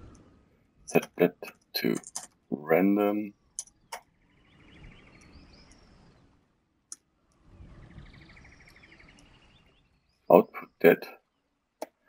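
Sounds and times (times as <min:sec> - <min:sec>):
faint rapid chirping trills: 0:03.1 - 0:11.8.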